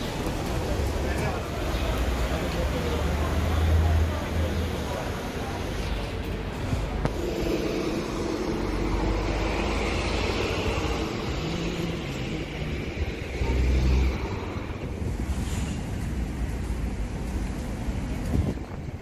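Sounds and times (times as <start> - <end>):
vehicle engines running: 0.0 - 19.0
loud low rumble: 6.4 - 16.4.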